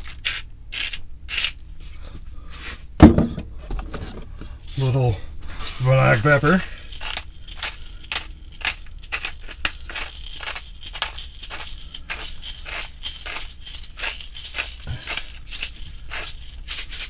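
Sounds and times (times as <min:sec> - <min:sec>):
pepper grinder crunching: 0:00.0 - 0:01.6, 0:04.6 - 0:05.0, 0:05.8 - 0:17.0.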